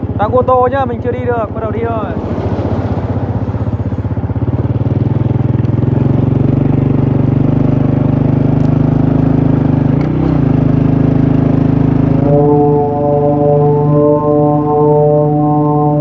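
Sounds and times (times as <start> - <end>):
vehicle engine running: 0.0 - 16.0
kite flutes sounding low chord: 11.8 - 16.0.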